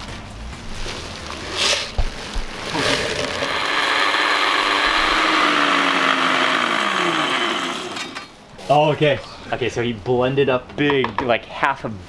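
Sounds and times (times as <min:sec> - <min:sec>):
blender grinding: 0:02.5 - 0:08.3.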